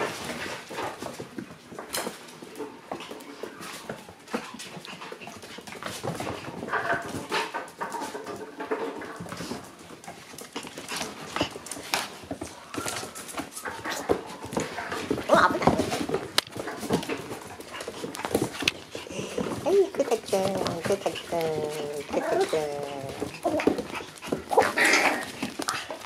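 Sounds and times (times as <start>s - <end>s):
puppies whimpering and whining: 2.6s - 5.3s, 12.4s - 16.1s, 20.3s - 26.0s.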